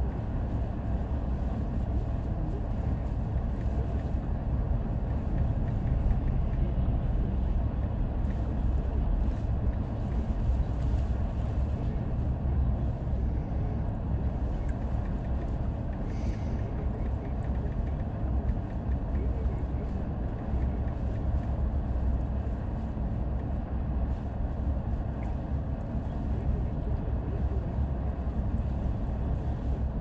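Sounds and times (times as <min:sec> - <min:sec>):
wind buffeting car: 0:00.0 - 0:30.0
car idling: 0:12.8 - 0:22.9.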